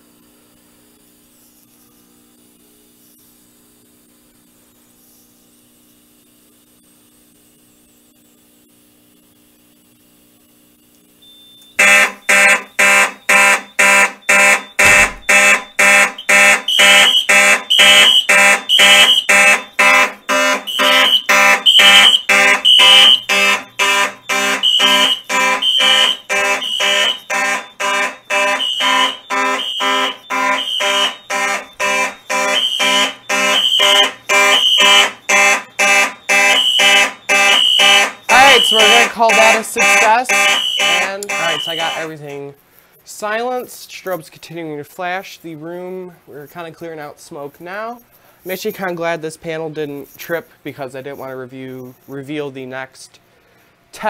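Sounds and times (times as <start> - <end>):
fire alarm horns blasting: 11.6 - 42.2
high-pitched beeping: 11.8 - 42.2.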